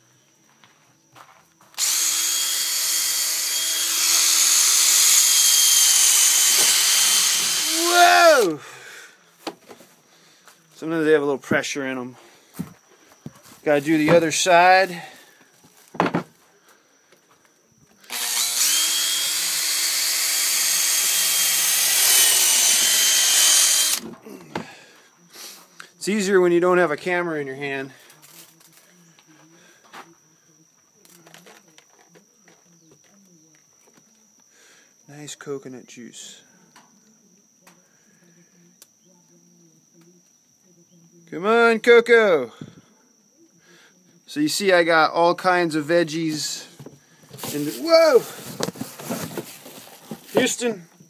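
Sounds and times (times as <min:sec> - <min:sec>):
power drill boring into coconut shell: 0:01.8 - 0:08.6, 0:18.0 - 0:24.1, 0:47.3 - 0:50.7.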